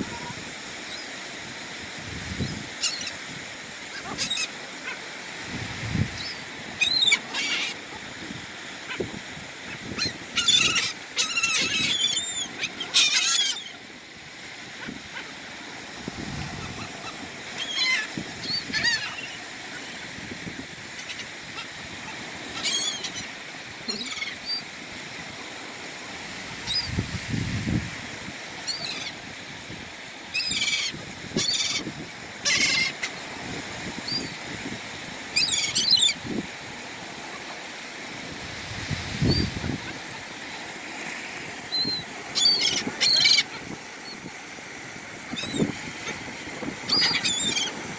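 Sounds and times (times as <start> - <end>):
gulls calling: 2.4 - 5.2, 5.9 - 14.0, 14.6 - 24.8, 30.3 - 34.4, 35.3 - 36.3, 39.2 - 47.9.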